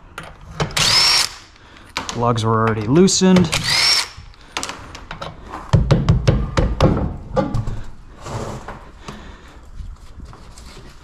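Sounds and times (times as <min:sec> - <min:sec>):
sharp knocks: 0:05.7 - 0:07.8.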